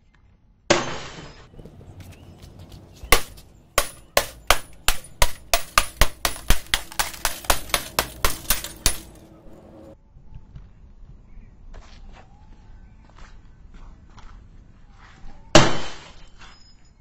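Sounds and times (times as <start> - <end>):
hammer smashing glass screen: 3.0 - 9.3.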